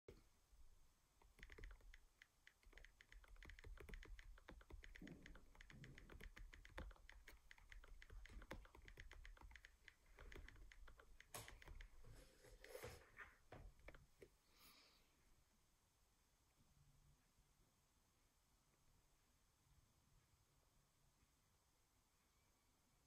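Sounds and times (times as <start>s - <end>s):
touchscreen keyboard taps: 1.2s - 13.0s.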